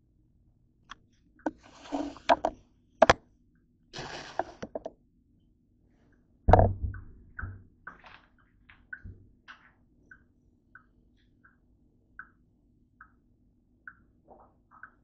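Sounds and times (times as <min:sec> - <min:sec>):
plastic bottle knocking on counter: 0:06.5 - 0:07.0.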